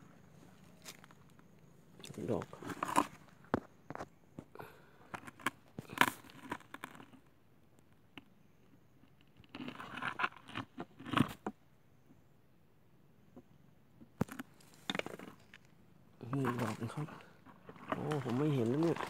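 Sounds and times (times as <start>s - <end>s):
footsteps on gravel: 0.4s - 1.2s, 16.4s - 19.0s.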